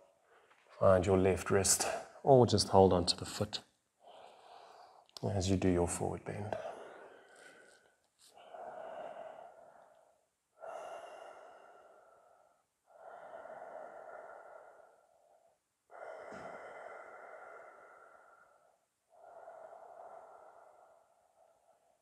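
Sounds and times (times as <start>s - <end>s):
person breathing slowly: 4.0s - 5.2s, 6.5s - 22.0s.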